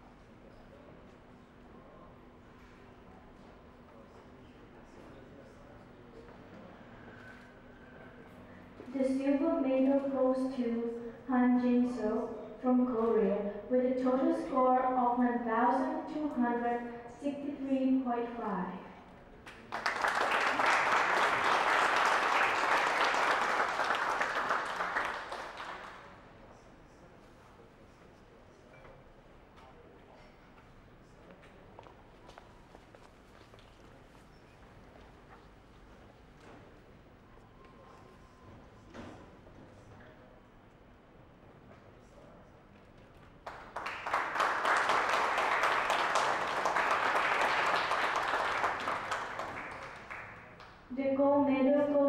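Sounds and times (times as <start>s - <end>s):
audience applauding: 19.5s - 26.1s, 43.4s - 50.8s.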